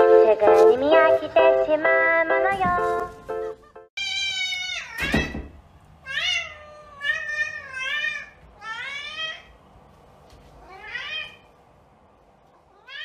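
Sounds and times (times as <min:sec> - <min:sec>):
cat meowing: 0:04.0 - 0:05.4, 0:06.0 - 0:09.5, 0:10.6 - 0:11.5, 0:12.7 - 0:13.0.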